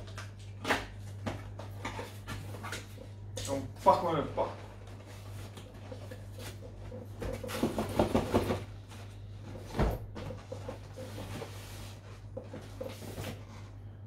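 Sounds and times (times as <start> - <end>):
cardboard scraping and rustling: 4.9 - 13.8.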